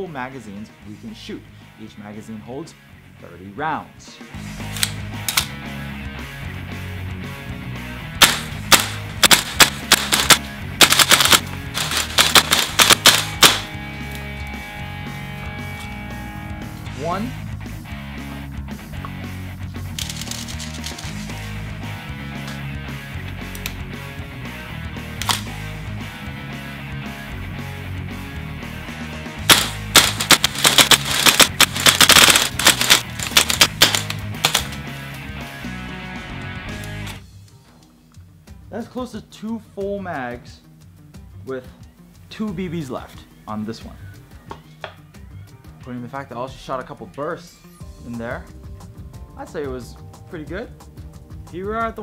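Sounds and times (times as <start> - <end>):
background music: 0.0 - 52.0
airsoft rifle shots: 8.2 - 13.8, 29.5 - 34.8.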